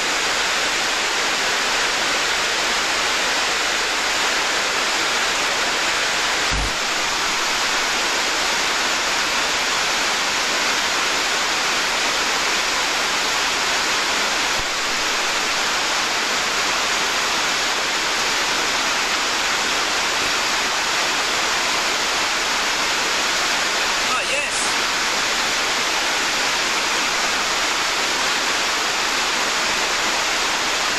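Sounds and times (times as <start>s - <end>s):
waterfall rushing over rocks: 0.0s - 30.9s.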